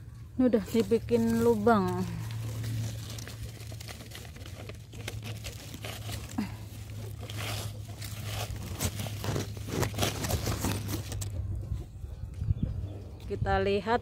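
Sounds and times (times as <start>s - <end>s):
hands scraping soil: 0.4s - 11.4s
packet crinkling: 0.6s - 11.3s.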